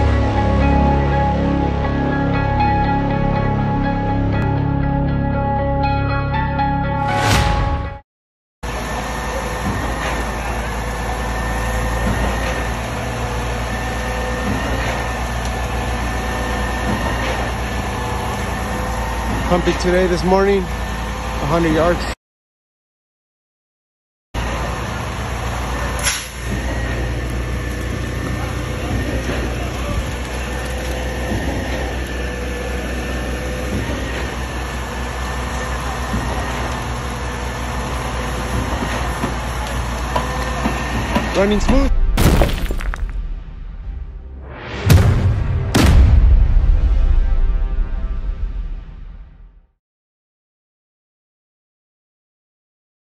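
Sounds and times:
engine and hydraulic drone: 0.0s - 6.0s, 8.6s - 22.2s, 24.4s - 42.2s
concrete pump running: 8.6s - 22.2s, 24.4s - 41.9s.

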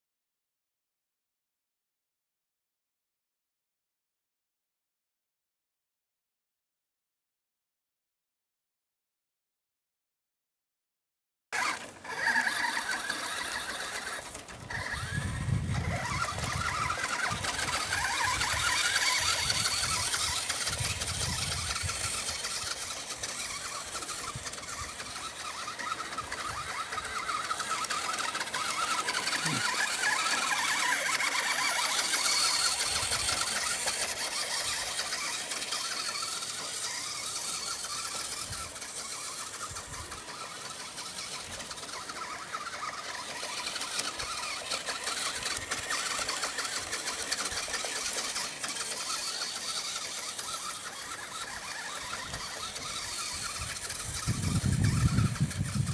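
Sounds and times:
toy truck electric motor whining: 11.6s - 55.9s.

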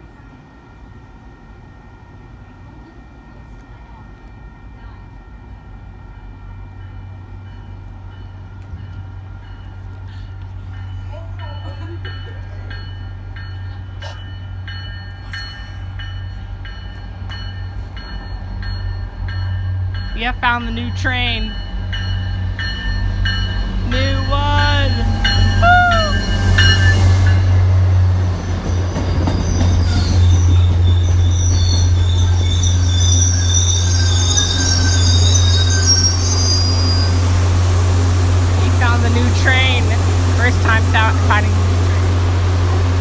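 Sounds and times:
diesel train rumble: 0.0s - 43.0s
warning bell ringing: 10.6s - 27.6s
high-pitched wheel squeals: 24.9s - 27.1s, 28.4s - 37.2s.

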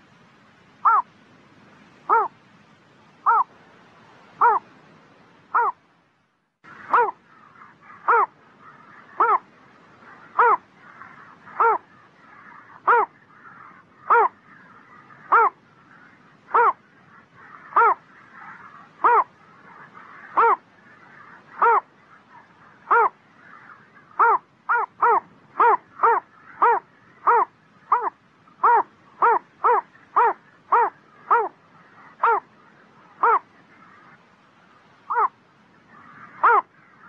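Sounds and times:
heron calling harshly: 0.8s - 1.1s, 2.1s - 2.3s, 3.2s - 3.5s, 4.4s - 4.7s, 5.5s - 5.8s, 6.8s - 15.7s, 16.4s - 34.1s, 35.1s - 35.4s, 36.0s - 37.0s.

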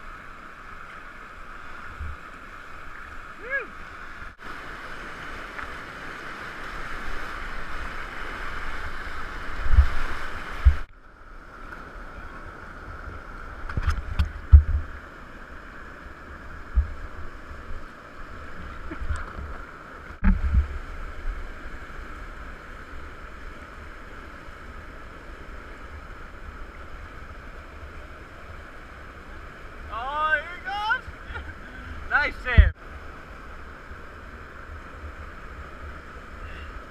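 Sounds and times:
whitewater rapids rushing: 20.8s - 36.9s.

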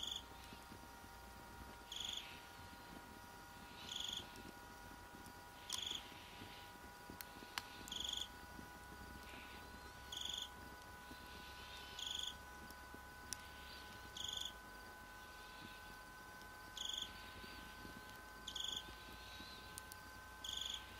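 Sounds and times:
cricket chirping: 0.0s - 0.2s, 1.9s - 2.4s, 3.8s - 4.3s, 5.7s - 6.0s, 7.9s - 8.3s, 10.1s - 10.5s, 11.8s - 12.4s, 14.2s - 14.6s, 16.7s - 17.2s, 18.5s - 18.9s, 20.4s - 20.9s
steady thin whine: 0.0s - 20.9s.

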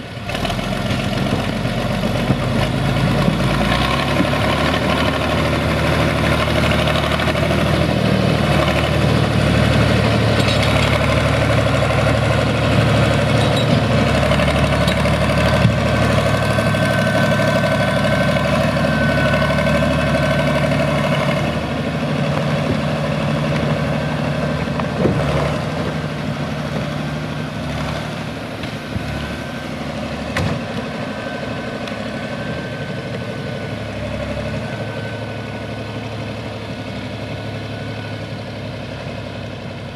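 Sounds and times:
tractor diesel engine running: 0.0s - 39.9s
high whine: 15.4s - 22.5s.

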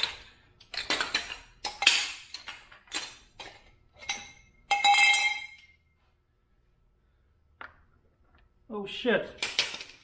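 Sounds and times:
metal tools clanking on concrete: 0.0s - 5.8s, 9.3s - 10.0s.

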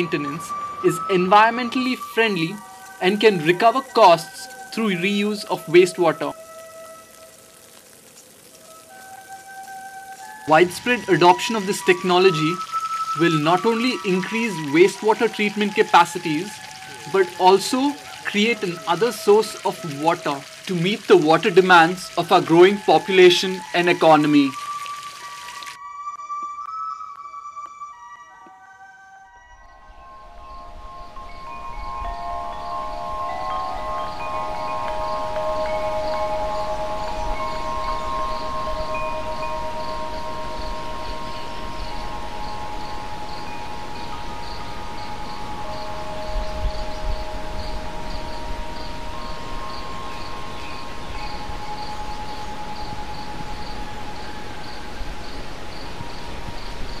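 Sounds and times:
steady hum and hiss: 0.0s - 25.7s, 29.9s - 57.0s
insects chirping: 0.0s - 27.7s, 29.6s - 57.0s
wind chimes ringing: 0.0s - 57.0s.

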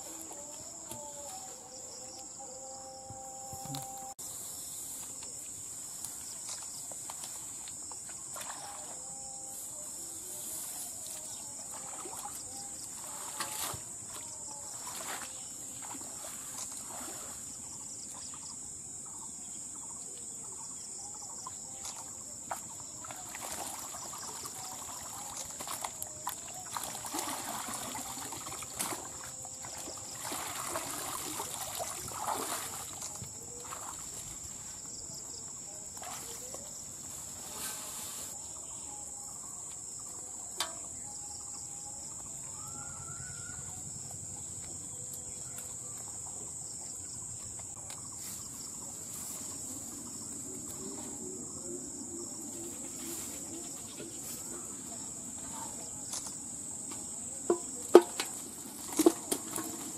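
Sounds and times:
insects droning: 0.0s - 59.9s
water splashing and dripping: 22.5s - 34.3s.

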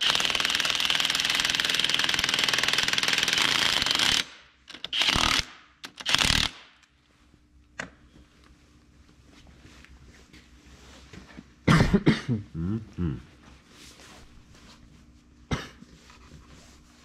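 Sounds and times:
power ratchet rattling: 0.0s - 6.6s.

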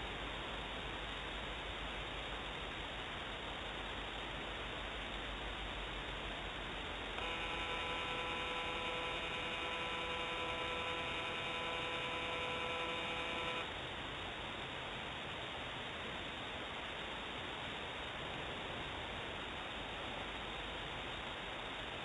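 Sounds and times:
constant hiss: 0.0s - 22.0s
camera pan motor whining: 7.2s - 13.7s.

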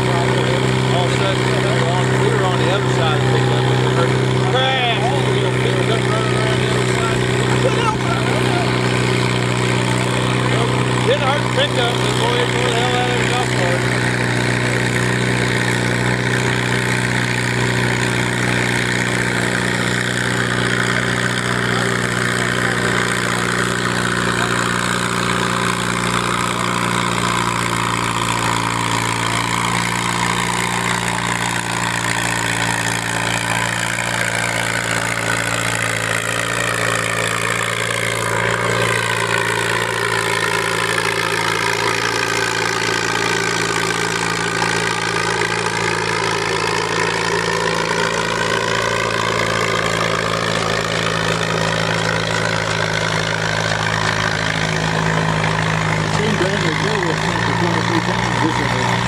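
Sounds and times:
diesel tractor engines running: 0.0s - 59.0s
tractor driving past: 0.0s - 59.0s.

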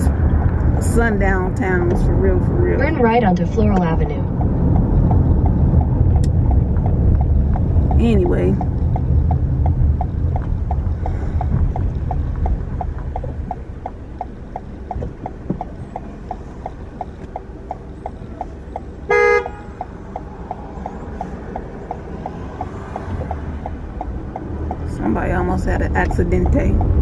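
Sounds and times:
road rumble inside car: 0.0s - 27.0s
turn signal ticking: 0.0s - 27.0s
car horn toot: 19.1s - 19.8s.

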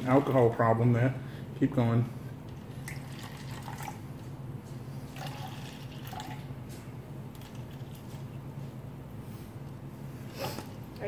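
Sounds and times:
liquid trickling into cups: 2.5s - 4.3s, 5.1s - 8.3s.

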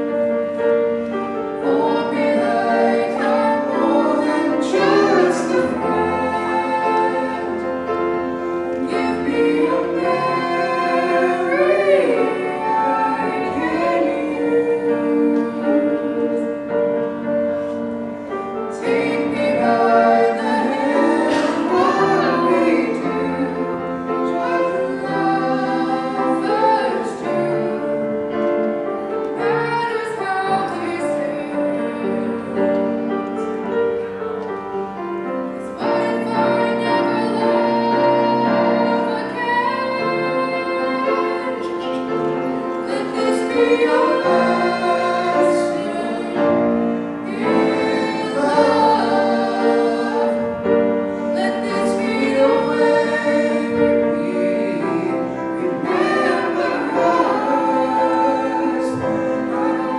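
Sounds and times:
piano accompaniment: 0.0s - 59.9s
man and woman singing duet: 1.6s - 7.9s, 8.7s - 16.6s, 18.7s - 28.2s, 35.6s - 59.9s.

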